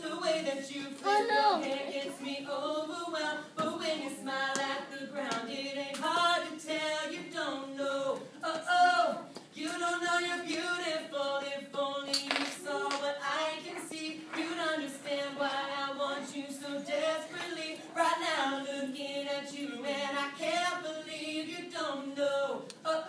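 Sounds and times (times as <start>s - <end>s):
unaccompanied voices singing: 0.0s - 23.0s.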